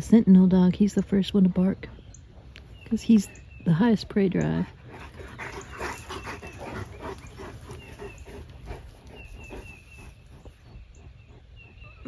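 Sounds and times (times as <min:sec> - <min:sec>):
dogs panting: 0:04.4 - 0:12.0.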